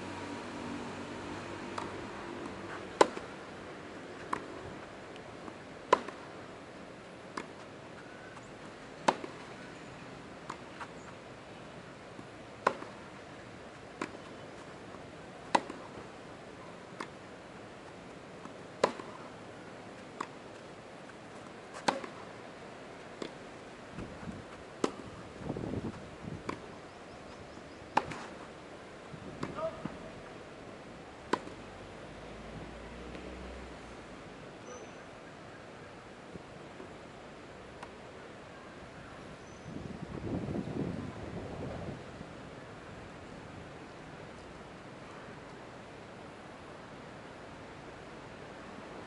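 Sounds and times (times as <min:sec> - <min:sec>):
tennis ball hit by rackets: 0:01.7 - 0:03.4, 0:04.2 - 0:04.6, 0:05.4 - 0:06.2, 0:07.3 - 0:07.6, 0:09.0 - 0:09.5, 0:12.2 - 0:13.1, 0:13.9 - 0:14.4, 0:15.4 - 0:16.1, 0:16.9 - 0:17.2, 0:18.4 - 0:19.3, 0:20.1 - 0:20.4, 0:21.7 - 0:22.3, 0:24.8 - 0:25.1, 0:26.4 - 0:26.7, 0:27.9 - 0:28.4, 0:29.4 - 0:30.0, 0:31.3 - 0:31.6.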